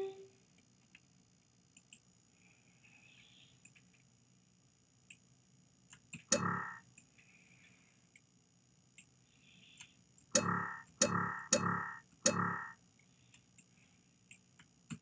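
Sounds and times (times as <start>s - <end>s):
computer mouse clicks: 1.7s - 2.1s, 3.6s - 4.0s, 5.9s - 7.1s.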